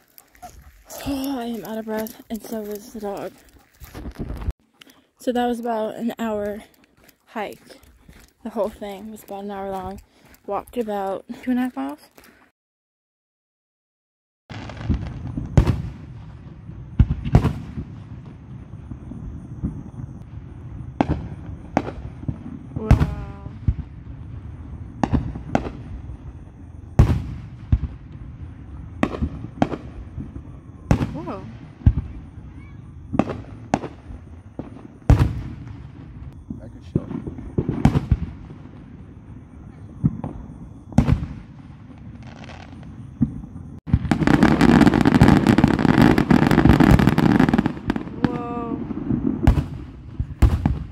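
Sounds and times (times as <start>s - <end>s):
fireworks booming: 14.5s - 50.9s.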